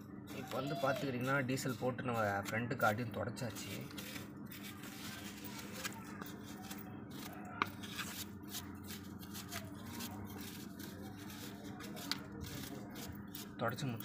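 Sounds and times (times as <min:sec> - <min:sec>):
cloth rubbing on metal: 0:03.6 - 0:14.0.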